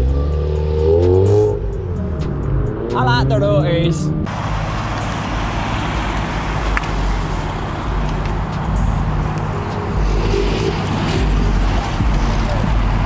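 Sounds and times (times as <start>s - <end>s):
car engine low rumble: 0.0s - 13.0s.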